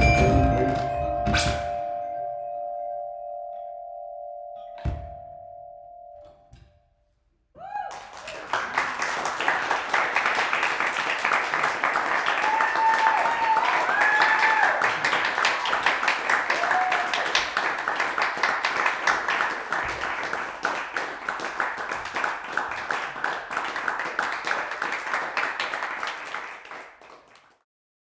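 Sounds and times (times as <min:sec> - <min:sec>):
person whooping: 0:07.6 - 0:08.4, 0:12.3 - 0:14.9, 0:16.5 - 0:17.4
audience applauding: 0:07.7 - 0:27.6.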